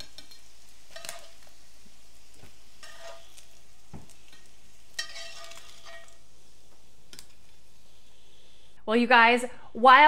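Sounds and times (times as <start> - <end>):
butter sizzling in a skillet: 0.0 - 8.8
metal spatula scraping pan: 2.8 - 3.4, 4.3 - 6.2
spatula clinking against plates: 4.3 - 6.1.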